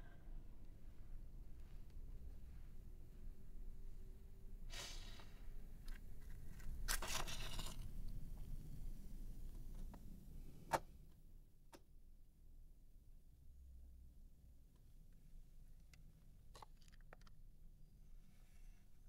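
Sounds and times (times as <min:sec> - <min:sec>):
objects rustling and scraping: 0:06.2 - 0:08.0.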